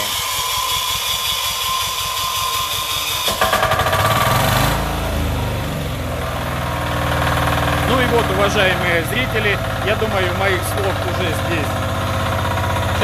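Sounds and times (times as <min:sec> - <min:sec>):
electric starter cranking: 0:00.0 - 0:13.0
diesel engine running: 0:03.4 - 0:13.0.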